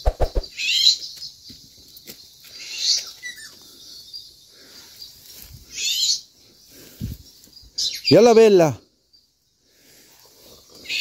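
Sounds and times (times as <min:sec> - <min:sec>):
rustling undergrowth: 0:00.0 - 0:08.2
footsteps through grass: 0:05.2 - 0:05.8.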